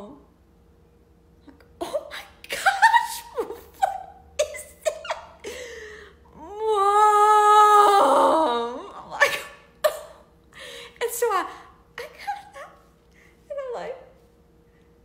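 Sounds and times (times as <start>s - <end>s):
woman laughing: 2.5s - 5.8s, 9.0s - 10.2s.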